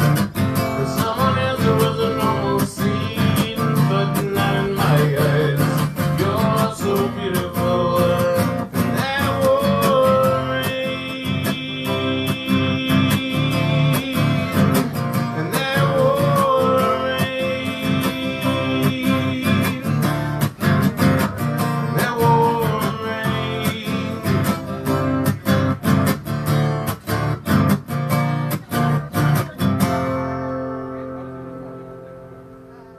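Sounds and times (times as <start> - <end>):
man singing: 0.0 - 25.9
acoustic guitar strumming: 0.0 - 32.9.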